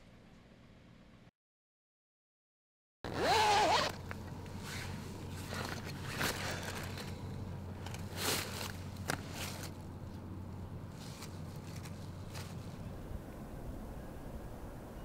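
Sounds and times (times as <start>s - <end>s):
zipper pulled open: 3.1s - 4.0s, 4.6s - 7.1s
steady low hum: 4.0s - 15.0s
scraping and rustling: 10.9s - 12.8s.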